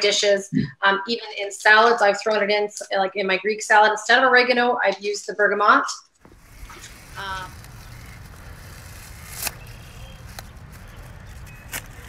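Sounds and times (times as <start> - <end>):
low outdoor rumble: 6.3 - 12.0
scissors snipping stems: 8.9 - 12.0.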